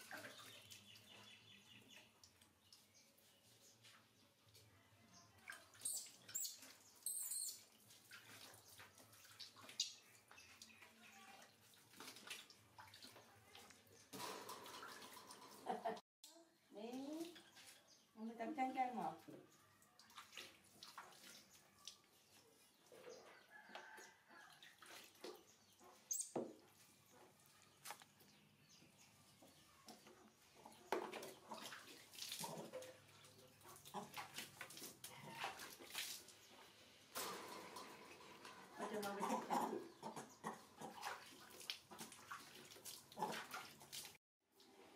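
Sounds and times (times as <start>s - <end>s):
water dripping into tub: 0.0s - 3.1s, 5.3s - 23.0s, 29.9s - 36.7s, 38.8s - 44.8s
water splashing in a basin: 0.0s - 16.0s, 16.8s - 28.5s, 29.3s - 44.9s.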